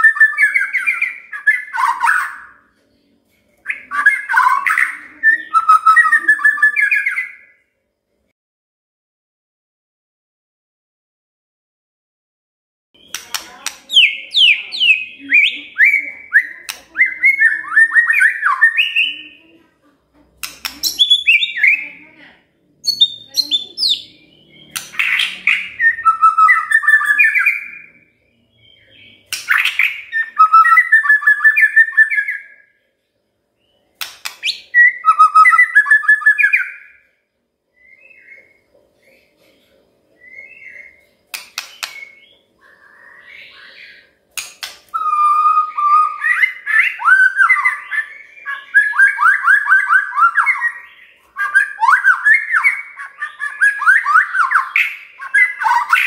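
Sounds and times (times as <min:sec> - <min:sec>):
songbird whistling and chattering: 0:00.0 - 0:02.7, 0:03.6 - 0:07.6, 0:13.0 - 0:19.4, 0:20.4 - 0:22.1, 0:22.8 - 0:32.7, 0:34.0 - 0:37.1, 0:40.2 - 0:56.0.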